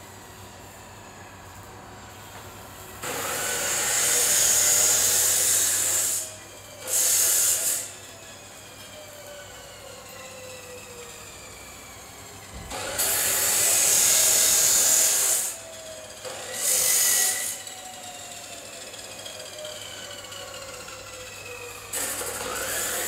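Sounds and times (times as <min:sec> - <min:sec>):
cut-off wheel cutting steel: 0:03.0 - 0:08.2, 0:12.7 - 0:23.0.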